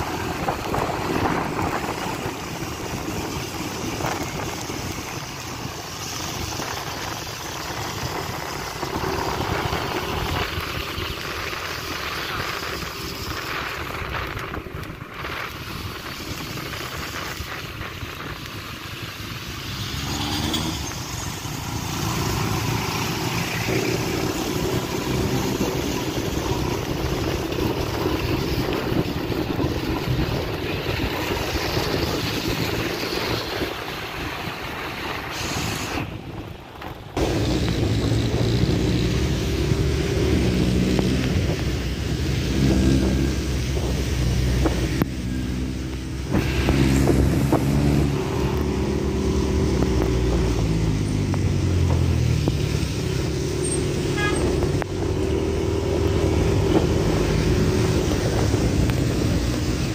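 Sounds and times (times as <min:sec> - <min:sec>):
wind noise on microphone: 0:00.0 - 0:59.9
motorcycle engine revving: 0:16.0 - 0:34.7, 0:37.2 - 0:59.9.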